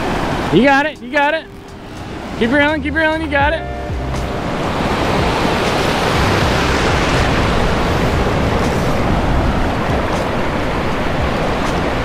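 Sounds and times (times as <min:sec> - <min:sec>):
ocean surf breaking: 0:00.0 - 0:12.0
wind buffeting microphone: 0:03.4 - 0:12.0.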